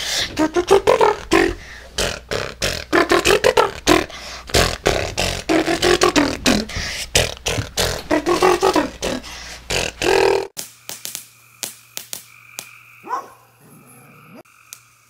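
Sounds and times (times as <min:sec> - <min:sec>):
beatboxing: 0:00.0 - 0:10.6.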